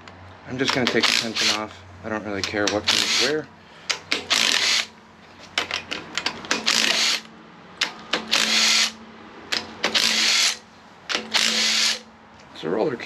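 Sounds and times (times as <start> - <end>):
impact driver hammering: 0.6 - 1.6, 2.4 - 4.9, 5.6 - 12.1.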